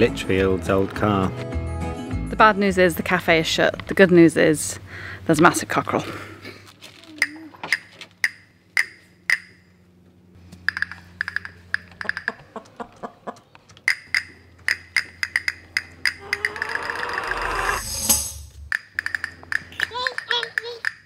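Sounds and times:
wood-block percussion beat: 13.9 - 21.0
low steady bass: 17.4 - 18.8.

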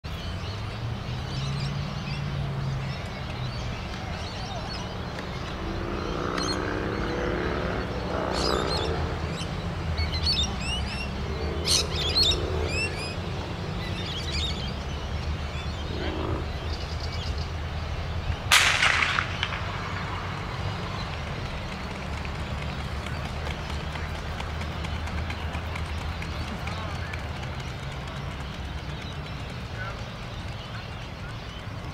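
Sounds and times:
birds chirping: 0.1 - 31.9
low outdoor rumble: 2.4 - 31.9
starting pistol crack: 18.5 - 20.3.

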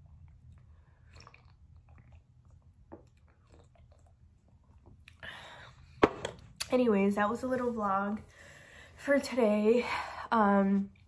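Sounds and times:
sipping and swallowing: 0.2 - 5.2.

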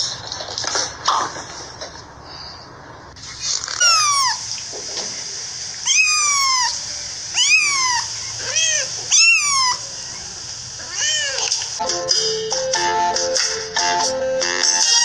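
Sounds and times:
steady background hiss: 2.0 - 14.9
kitten meowing: 3.8 - 4.4, 5.9 - 11.5.

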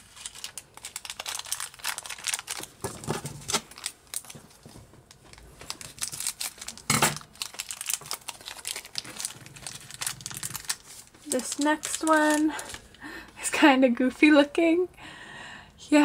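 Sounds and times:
plastic wrapper crinkling: 0.0 - 13.0.

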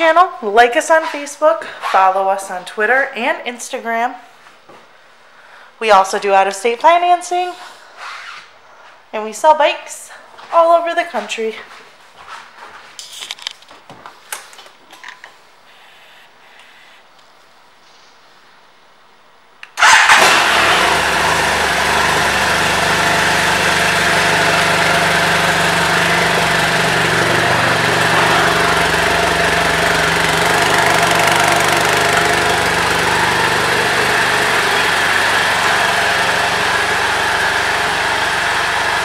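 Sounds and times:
motorcycle engine starting and idling: 19.7 - 39.0.

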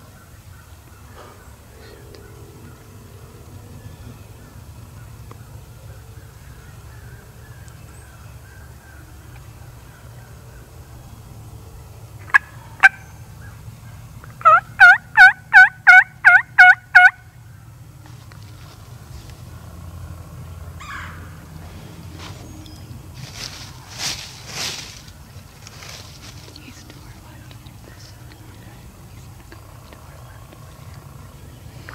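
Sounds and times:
faint low rumble: 0.0 - 31.9
turkey yelping: 12.3 - 13.1, 14.4 - 17.2, 20.8 - 21.3.

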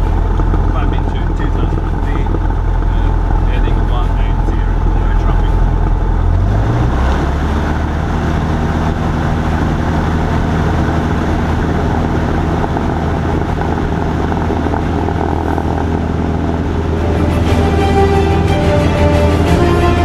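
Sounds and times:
music: 0.0 - 6.6, 16.8 - 20.0
propeller plane engine running: 0.0 - 20.0.

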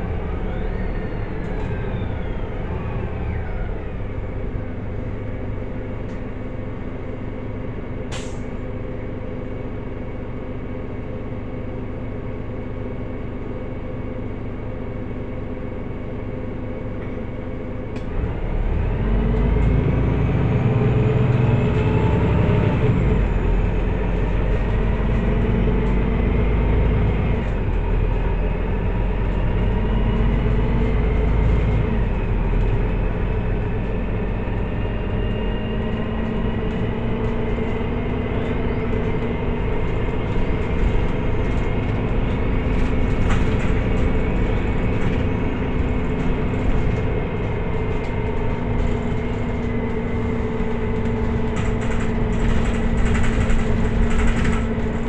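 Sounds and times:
bus engine running: 0.0 - 55.0.

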